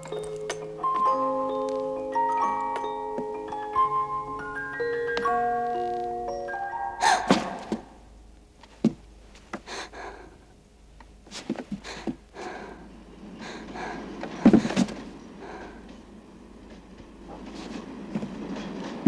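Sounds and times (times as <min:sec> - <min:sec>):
footsteps on wooden floorboards: 0:04.4 - 0:06.4, 0:07.3 - 0:08.0, 0:08.6 - 0:09.7, 0:14.2 - 0:15.1
floorboards creaking: 0:04.8 - 0:06.4, 0:07.1 - 0:08.0, 0:13.8 - 0:15.1
heavy thud of kneeling: 0:14.2 - 0:15.0.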